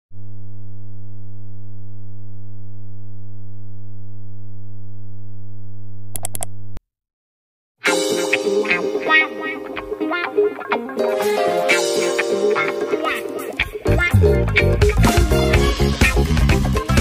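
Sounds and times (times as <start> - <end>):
sharp clicks: 6.2 - 6.5
music: 7.8 - 17.0.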